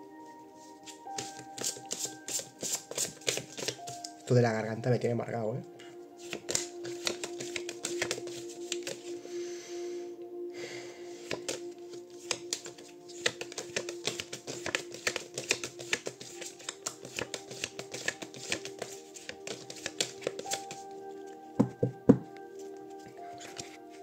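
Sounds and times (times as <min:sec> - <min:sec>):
soft background music: 0:00.0 - 0:24.0
cards being shuffled: 0:00.9 - 0:04.2, 0:06.2 - 0:09.1, 0:11.2 - 0:20.8, 0:23.3 - 0:23.8.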